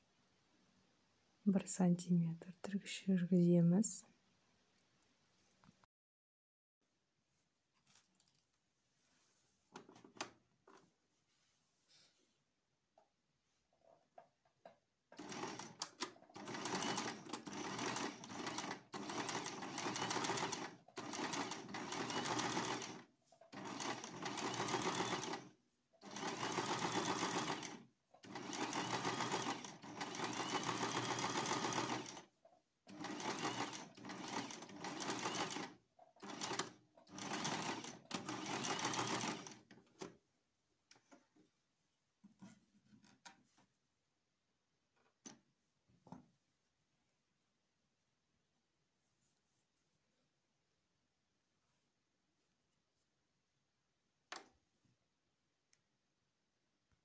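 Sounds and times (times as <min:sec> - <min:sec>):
sewing machine stitching: 0:15.1 - 0:32.3, 0:32.9 - 0:40.2.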